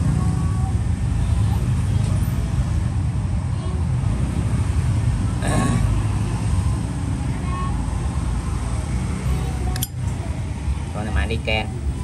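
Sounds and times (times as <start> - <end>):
low rumble of road traffic: 0.0 - 12.0
sharp click: 9.8 - 10.0.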